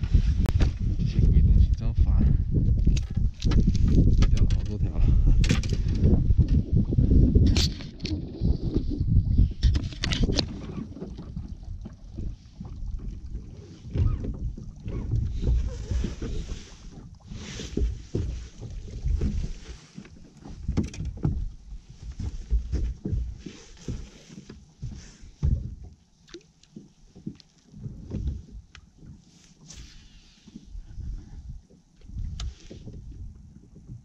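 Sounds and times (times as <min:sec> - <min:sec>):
gusty wind on microphone: 0:00.0 - 0:19.8, 0:30.7 - 0:34.0
water lapping against boat hull: 0:00.0 - 0:34.0.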